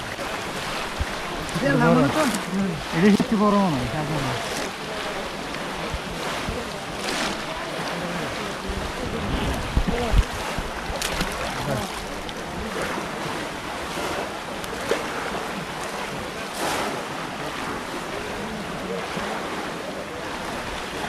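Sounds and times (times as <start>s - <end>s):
water sloshing and splashing: 0.0s - 21.0s
wind rumbling on microphone: 3.2s - 14.4s
low thumps: 8.8s - 11.6s.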